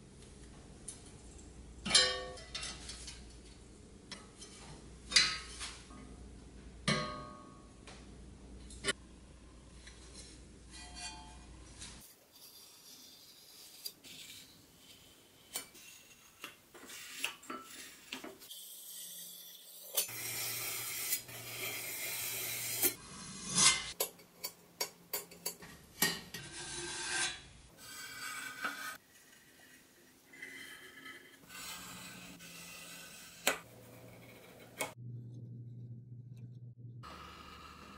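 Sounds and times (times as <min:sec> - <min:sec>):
scraping and rubbing on metal: 0:09.7 - 0:24.6, 0:25.4 - 0:35.0.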